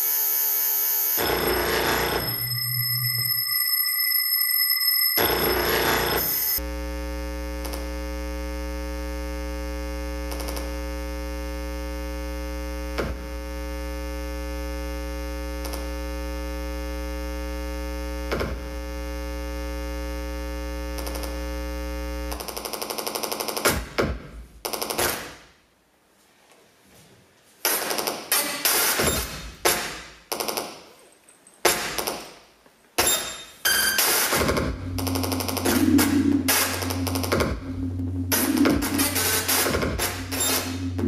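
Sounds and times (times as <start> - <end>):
electronic drone of held tones: 0.0 - 18.2, 33.7 - 41.0
loud stuttering electronic pulse: 1.2 - 3.6, 5.2 - 6.8, 34.0 - 41.0
low hum: 34.5 - 41.0.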